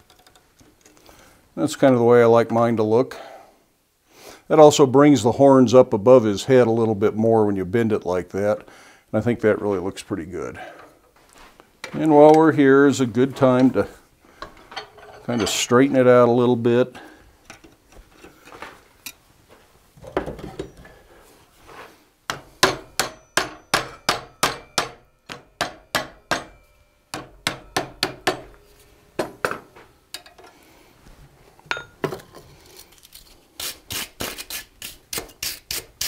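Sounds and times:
hammer striking hot metal: 22.3 - 28.6.

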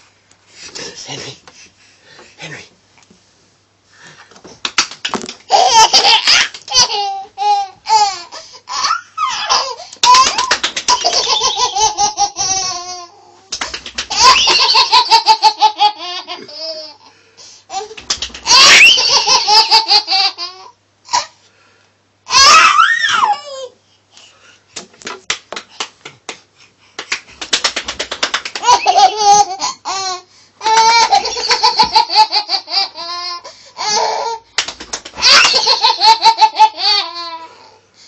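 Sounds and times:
man clapping hands: 4.6 - 5.4, 10.0 - 11.4, 13.5 - 14.6, 17.9 - 18.5, 24.8 - 26.4, 27.0 - 29.1, 34.6 - 35.6
baby laughing and squealing: 5.5 - 13.3, 14.1 - 17.0, 17.7 - 21.3, 22.3 - 23.7, 28.6 - 34.4, 35.2 - 37.5.

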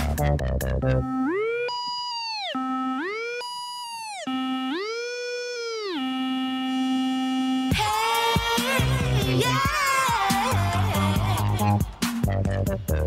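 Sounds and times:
electronic dance beat: 7.6 - 13.0.

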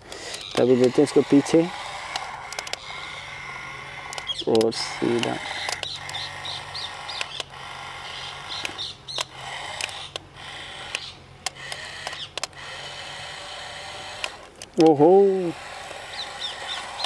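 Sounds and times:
toy motors whirring: 0.0 - 17.0
clicks: 2.1 - 2.9, 4.1 - 6.2, 10.9 - 12.6.

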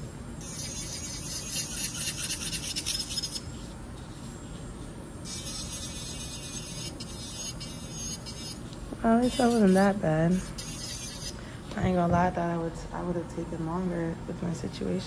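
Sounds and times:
nail file rubbing on nail: 0.4 - 4.6, 5.2 - 11.4.

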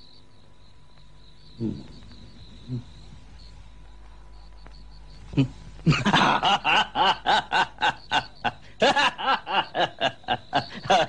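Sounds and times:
man laughing: 5.3 - 11.0.

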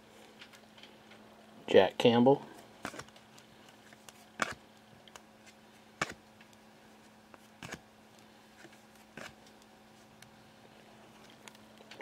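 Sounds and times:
cards clicking and rustling: 2.8 - 6.6, 7.3 - 7.8.

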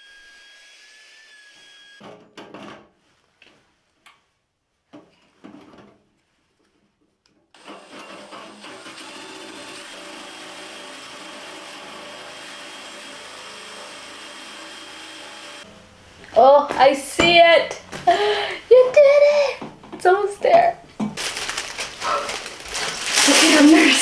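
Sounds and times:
hole saw cutting sheet metal: 7.6 - 15.7.

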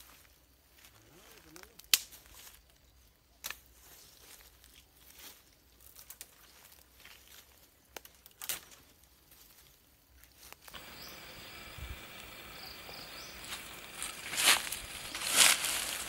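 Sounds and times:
faint insect calls: 0.0 - 16.0
leaves and stems rustling: 0.0 - 16.0
footsteps in grass: 3.4 - 16.0.

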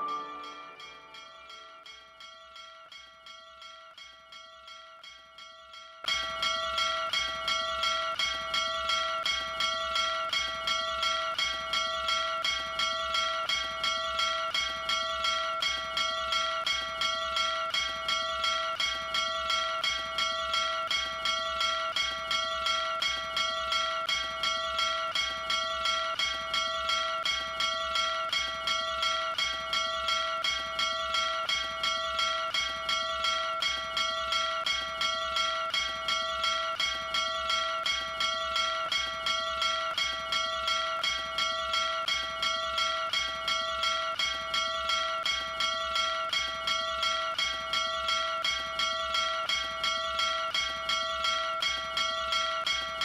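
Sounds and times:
small brass bell ringing: 0.0 - 2.8.

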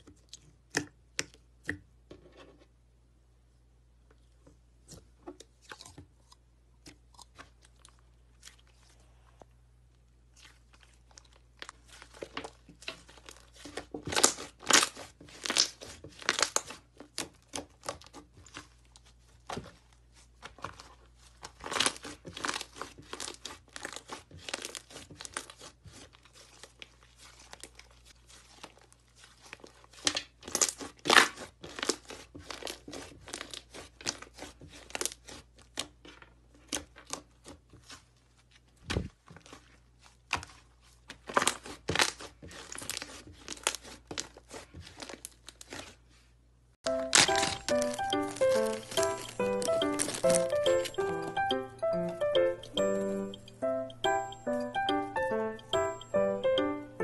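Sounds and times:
slime crackling and popping: 10.4 - 19.8, 20.4 - 36.0, 40.2 - 46.0, 46.8 - 54.9.

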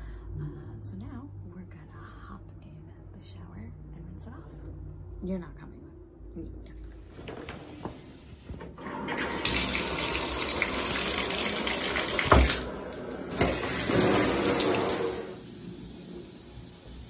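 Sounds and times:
bathtub faucet running: 8.8 - 17.0.

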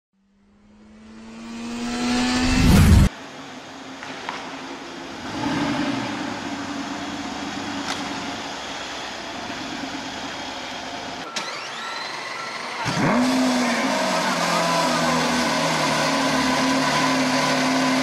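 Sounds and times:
faint rising whine: 0.2 - 3.9.

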